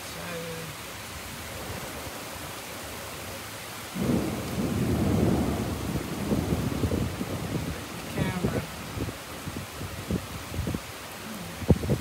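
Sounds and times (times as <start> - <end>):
driving rain hissing: 0.0 - 12.0
thunder rumbling: 4.0 - 12.0.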